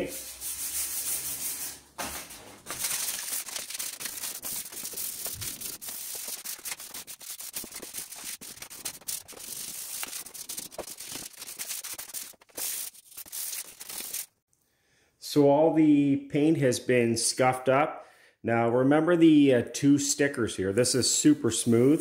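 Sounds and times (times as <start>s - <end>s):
sandpaper rubbing on metal: 0.0s - 1.8s, 2.7s - 14.3s.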